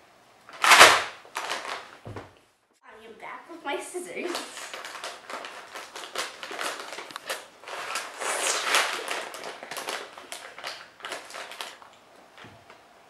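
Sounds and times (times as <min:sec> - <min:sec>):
snack bag crinkling: 0:00.5 - 0:02.0, 0:04.2 - 0:12.1.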